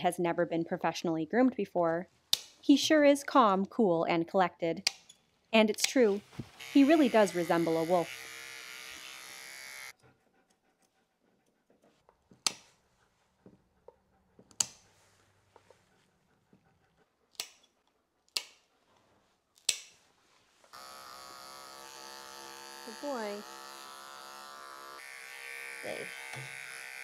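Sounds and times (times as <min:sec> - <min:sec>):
electric trimmer buzzing: 0:06.5 - 0:09.9, 0:20.7 - 0:27.0
nail clippers snipping: 0:17.4 - 0:17.7, 0:18.3 - 0:18.6, 0:19.6 - 0:20.0, 0:25.3 - 0:27.0.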